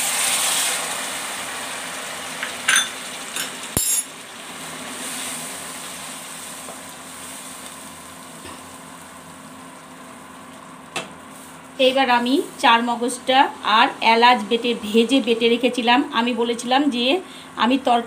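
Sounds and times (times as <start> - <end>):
water sizzling in hot oil: 0.0 - 11.8.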